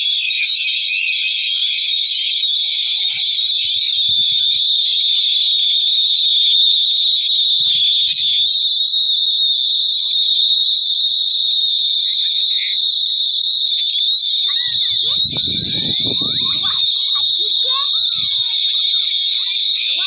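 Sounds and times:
shrill electronic whine: 0:13.0 - 0:20.0.

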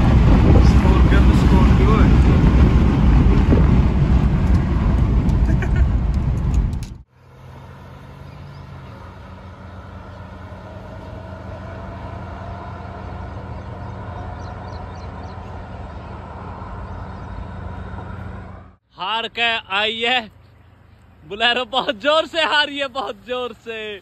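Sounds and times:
distant engines humming: 0:00.0 - 0:24.0
road and wind noise in car cabin: 0:00.0 - 0:24.0
faint rising tone: 0:07.2 - 0:18.8.

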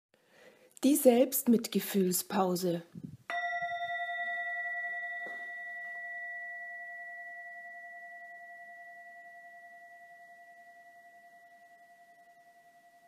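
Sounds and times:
singing bowl ringing: 0:03.3 - 0:13.0.

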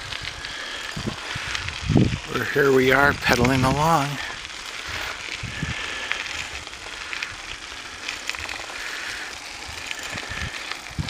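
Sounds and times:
bicycle tyres rolling on trail: 0:00.0 - 0:11.0
bike rattles and clicks: 0:00.0 - 0:11.0.

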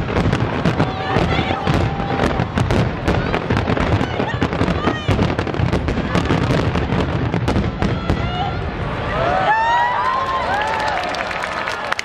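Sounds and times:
fireworks booming: 0:00.0 - 0:09.1.

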